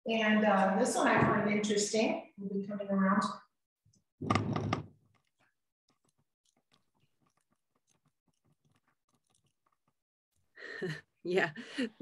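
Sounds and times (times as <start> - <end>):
faint clicks and crackles: 3.9 - 10.0.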